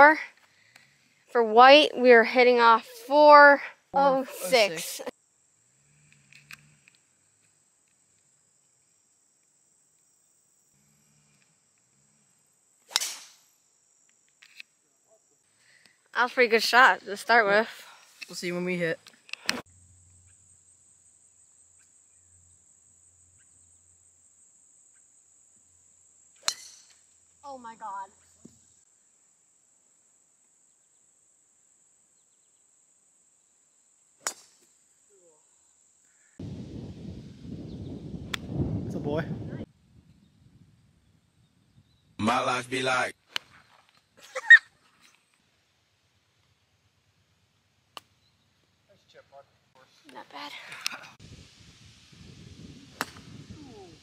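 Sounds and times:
crickets chirring: 3.8 - 38.7, 39.6 - 49.0
golf club striking ball: 12.9 - 13.4, 26.4 - 27.0, 52.9 - 53.3.

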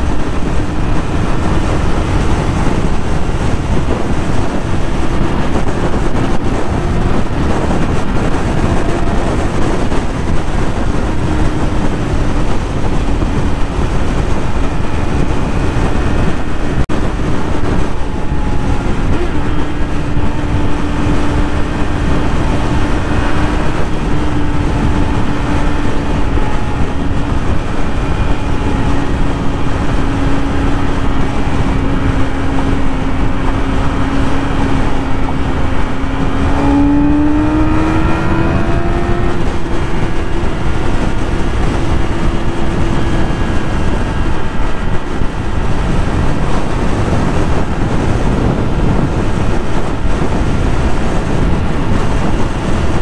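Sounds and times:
motorcycle engine at high speed: 0.0 - 53.0
wind rush on microphone: 0.0 - 53.0.

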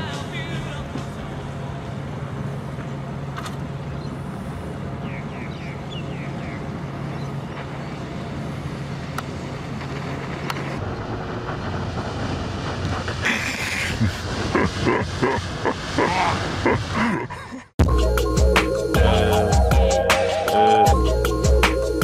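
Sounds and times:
low hum: 0.0 - 22.0
even rushing noise: 5.8 - 17.2.

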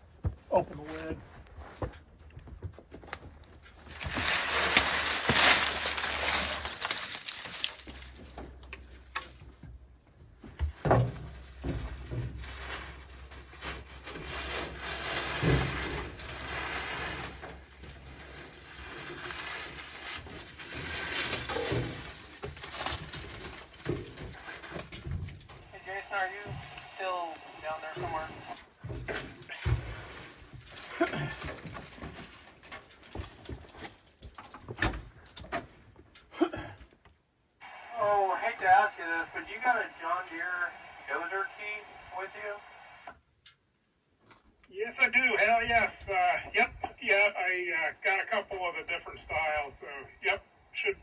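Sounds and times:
rustling: 0.8 - 9.6, 10.3 - 36.1.

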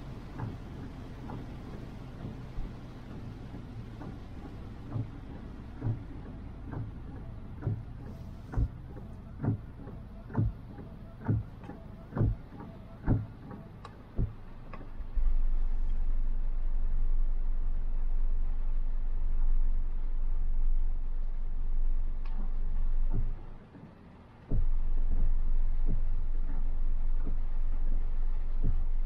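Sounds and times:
low steady hum: 0.0 - 29.0
rain on car: 0.0 - 29.0
short even thumps: 4.0 - 15.0.

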